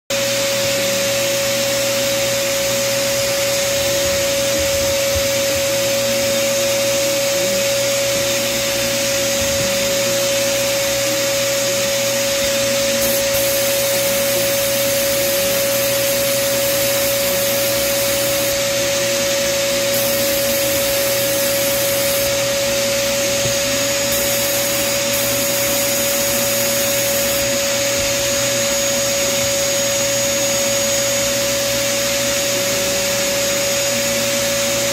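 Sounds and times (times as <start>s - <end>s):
blower whine: 0.1s - 34.9s
sandblast air hiss: 8.4s - 28.8s.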